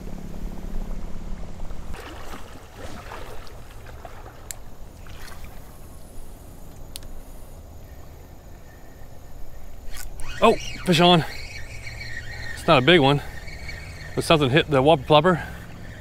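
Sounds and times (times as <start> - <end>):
creek water sloshing: 1.6 - 6.7, 10.0 - 16.0
sharp clicks: 6.7 - 7.2.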